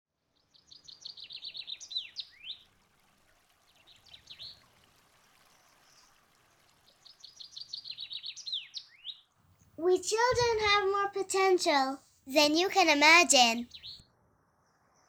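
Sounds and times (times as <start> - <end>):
bird singing: 0.4 - 2.6, 7.0 - 9.3, 13.3 - 15.0
faint steady hiss: 1.0 - 13.8.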